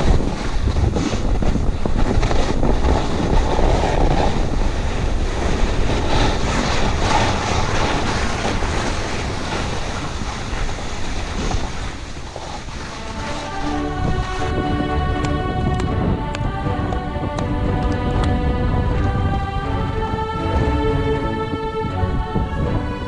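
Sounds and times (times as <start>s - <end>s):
skis hissing through snow: 0.0s - 13.9s
wind rumbling on microphone: 0.0s - 23.0s.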